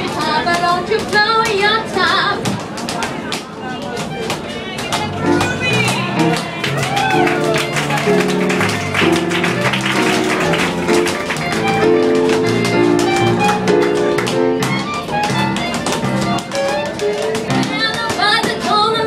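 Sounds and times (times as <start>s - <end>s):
tap shoes clicking: 0.1s - 19.0s
live band playing swing: 4.8s - 19.0s.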